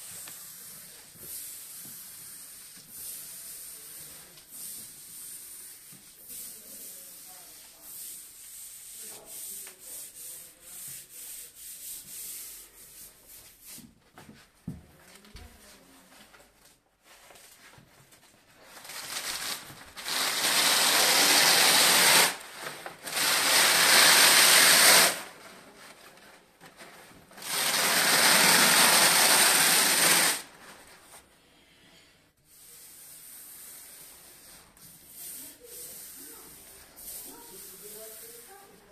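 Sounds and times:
hand rubbing paper on wall: 0:00.0 - 0:14.2, 0:17.0 - 0:31.3, 0:32.5 - 0:38.9
rasping paper: 0:18.8 - 0:25.3, 0:27.4 - 0:30.5.

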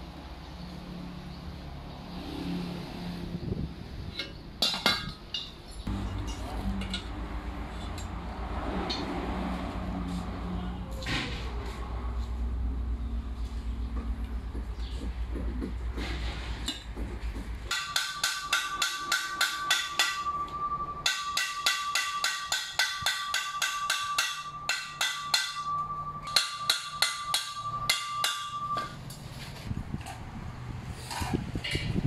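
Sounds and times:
hammer striking steel pipe: 0:17.7 - 0:29.0.

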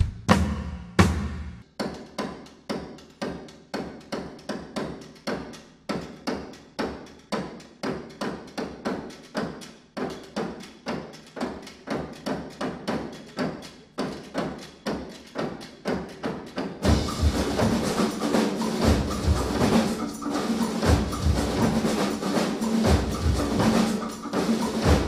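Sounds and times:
sharp percussion knocks: 0:16.6 - 0:25.0.

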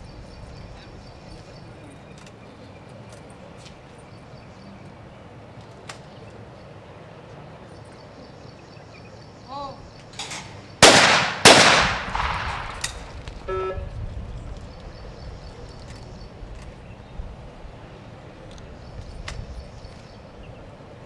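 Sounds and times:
shotgun shots echoing: 0:10.8 - 0:13.2.

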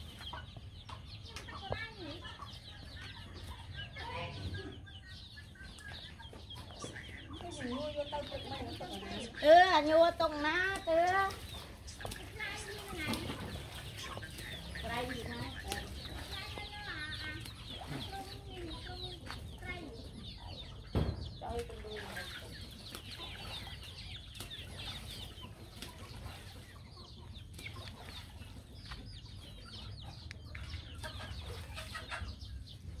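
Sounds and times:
chicks clucking and peeping: 0:00.0 - 0:33.0
thump: 0:20.9 - 0:21.3.

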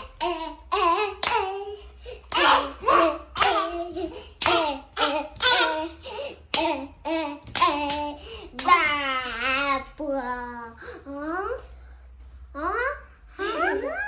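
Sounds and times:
children clapping hands: 0:00.0 - 0:01.6, 0:02.2 - 0:08.9
children singing a rhythmic chant: 0:00.0 - 0:09.0.

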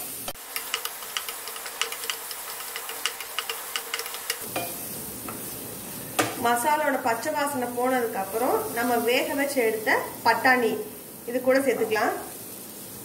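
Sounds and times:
paste sizzling in oil: 0:00.0 - 0:13.0
spatula scraping and clicking on pan: 0:00.4 - 0:05.5.

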